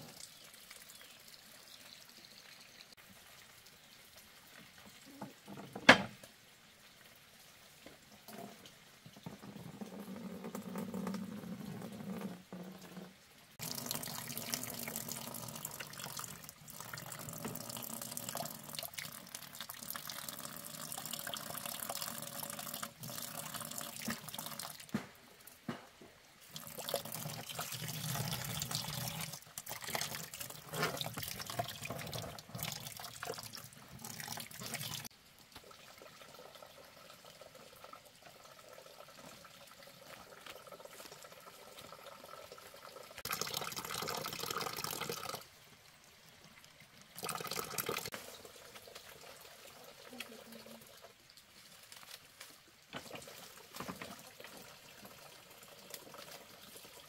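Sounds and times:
water splashing into container: 26.4 - 36.5, 42.5 - 45.4, 47.2 - 51.0.

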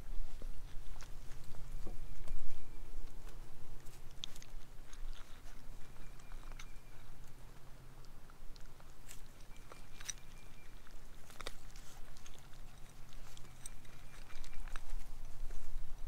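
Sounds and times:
puppies chewing dry kibble: 0.0 - 16.0.

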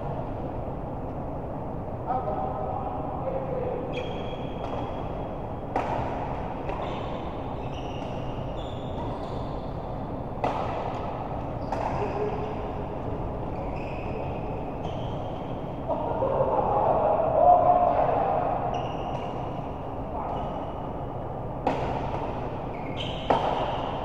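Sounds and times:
racket hitting shuttle: 5.7 - 6.8, 10.4 - 12.5, 21.6 - 24.0
shoes squeaking on court floor: 6.7 - 9.9, 13.5 - 15.7, 22.6 - 24.0.

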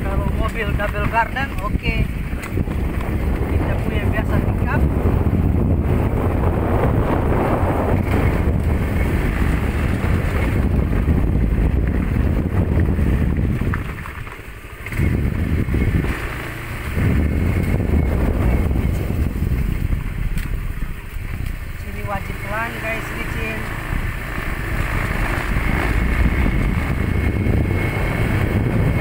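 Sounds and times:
motor scooter engine: 0.0 - 29.0
wind buffeting microphone: 0.0 - 29.0.

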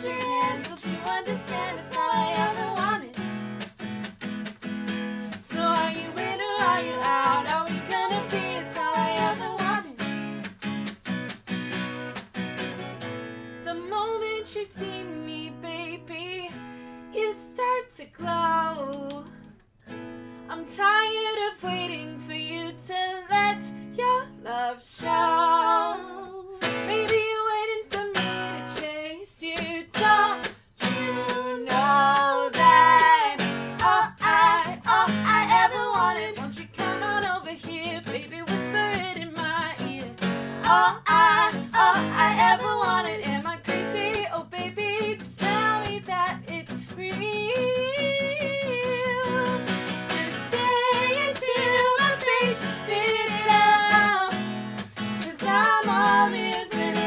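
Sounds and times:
women singing: 0.0 - 3.2, 5.3 - 10.0, 13.7 - 16.6, 17.2 - 19.2, 20.5 - 54.5, 55.2 - 57.0
acoustic guitar strumming: 0.0 - 13.6, 26.6 - 27.2, 29.6 - 57.0.

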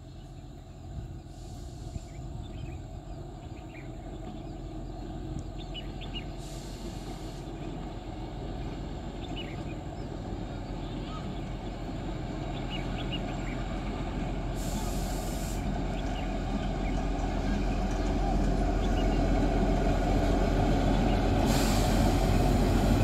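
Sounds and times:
small birds chirping: 0.0 - 6.5
train rumbling: 0.0 - 23.0.

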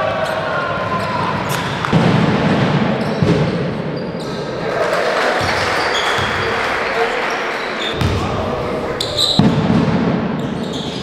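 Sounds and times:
large hall ambience: 0.0 - 11.0
basketball bouncing on court: 5.4 - 6.5, 7.9 - 8.4.

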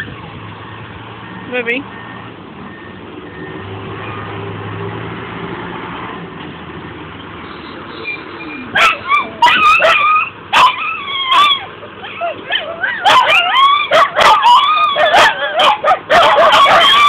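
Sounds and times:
vehicle engine humming: 0.0 - 17.0
dogs yipping and whining: 8.0 - 17.0.

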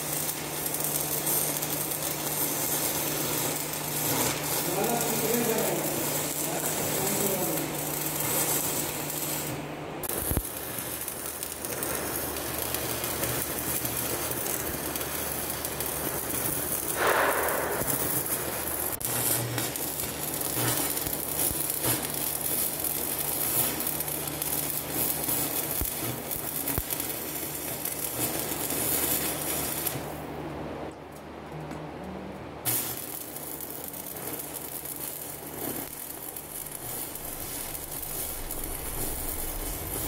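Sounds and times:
welding arc crackling: 0.0 - 30.4, 32.6 - 40.0
low hum: 35.8 - 40.0.

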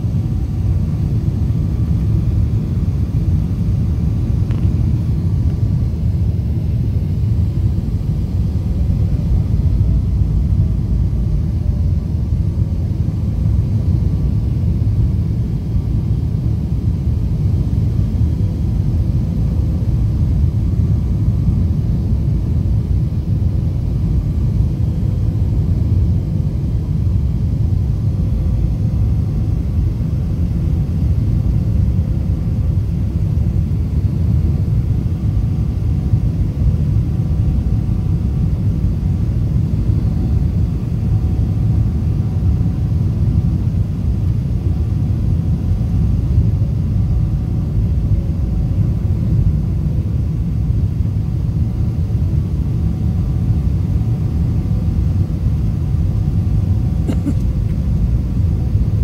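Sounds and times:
jet engines rumbling: 0.0 - 15.2
faint steady hum: 0.0 - 59.0.

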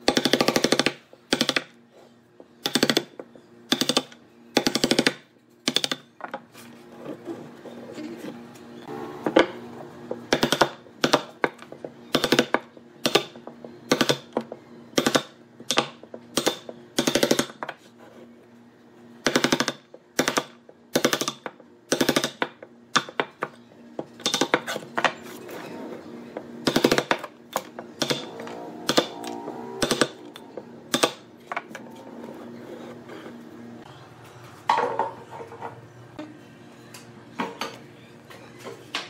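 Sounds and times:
faint background music: 33.8 - 39.0.

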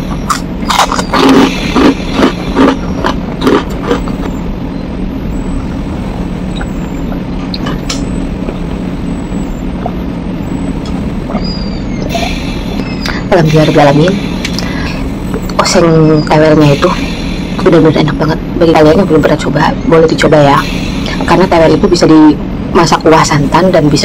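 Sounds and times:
steady low hum: 0.0 - 24.0
loud sharp chewing: 0.2 - 4.4.

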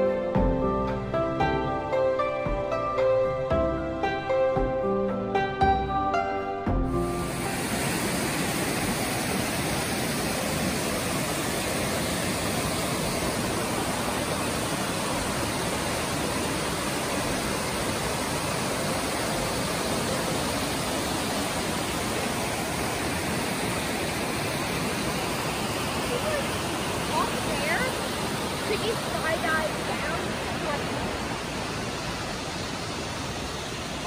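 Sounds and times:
waterfall roaring: 7.0 - 34.0.

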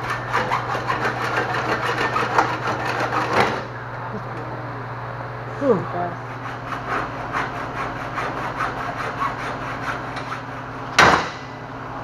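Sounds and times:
hacksaw cutting steel tubing: 0.0 - 3.6, 6.4 - 10.5
loud sharp knock: 11.0 - 11.5.

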